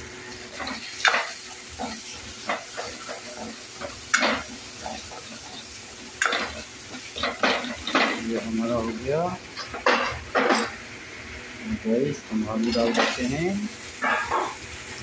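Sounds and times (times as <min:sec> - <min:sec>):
sauce sizzling in oil: 0:00.0 - 0:15.0
metal ladle scraping pan: 0:14.0 - 0:14.6.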